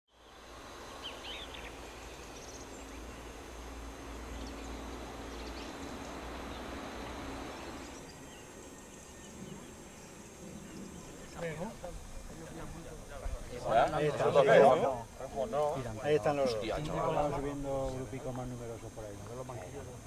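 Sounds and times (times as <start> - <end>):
small bird chirping: 0.1 - 12.7.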